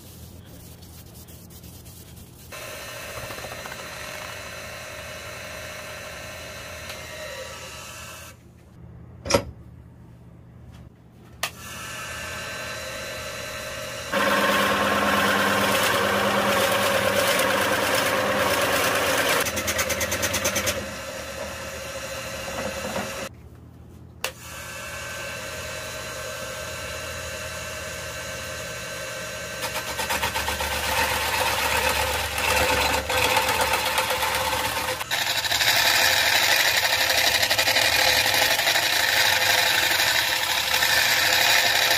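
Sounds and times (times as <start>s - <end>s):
hollowing tool cutting wood: 2.5s - 7.8s, 12.8s - 23.3s, 29.6s - 41.9s
wood lathe running: 2.6s - 7.5s, 12.6s - 23.3s, 29.6s - 41.9s
drill bit boring into wood: 14.1s - 23.3s, 29.6s - 41.9s.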